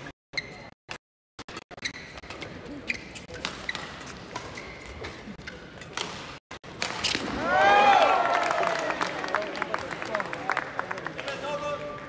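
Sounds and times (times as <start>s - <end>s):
shoe squeaks: 0.3s - 0.8s, 1.7s - 5.9s.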